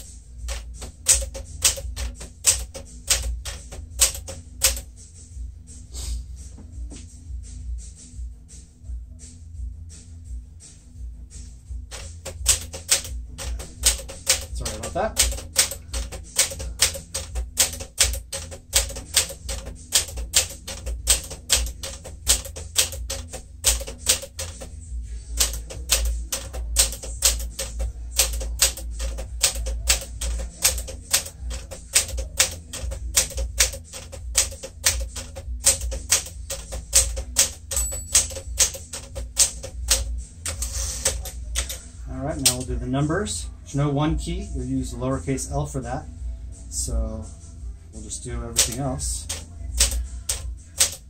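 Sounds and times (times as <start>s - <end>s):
typewriter keys clacking: 0.0s - 4.8s, 11.9s - 24.8s, 25.4s - 41.8s, 42.4s - 42.7s, 48.5s - 51.0s
typewriter bell ding: 25.4s - 40.0s.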